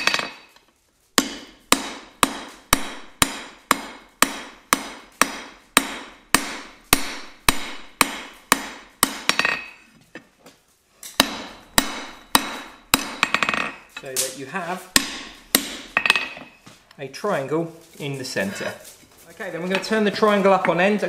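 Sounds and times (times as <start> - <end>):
hammer striking hot steel on anvil: 0.0 - 0.6, 1.2 - 9.8, 11.1 - 14.3, 14.9 - 16.6.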